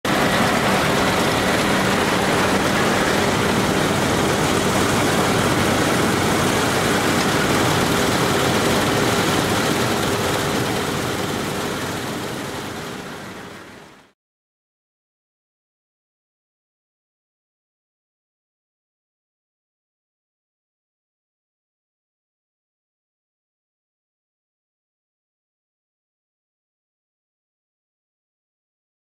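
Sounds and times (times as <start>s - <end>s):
combine harvester running: 0.1s - 14.1s.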